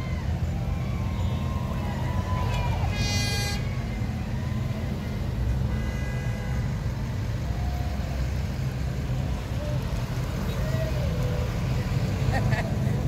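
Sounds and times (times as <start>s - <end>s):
cars passing slowly: 0.0s - 13.0s
car horn toot: 2.9s - 3.7s, 5.7s - 6.8s.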